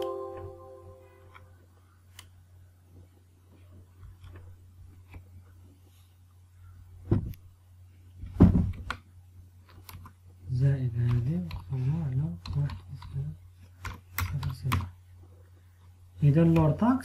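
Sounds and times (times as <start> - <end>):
low electrical hum: 0.0 - 17.0
heavy thumps: 8.2 - 8.8.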